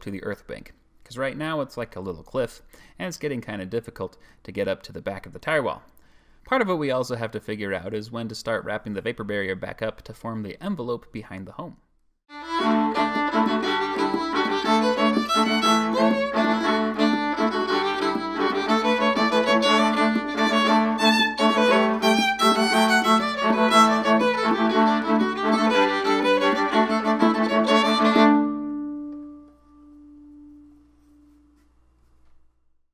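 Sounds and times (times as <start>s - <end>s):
instrumental music: 12.3s - 31.8s.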